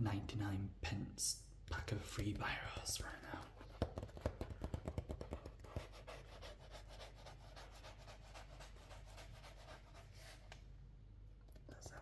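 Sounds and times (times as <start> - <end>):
fingers rubbing on paper: 3.4 - 10.4.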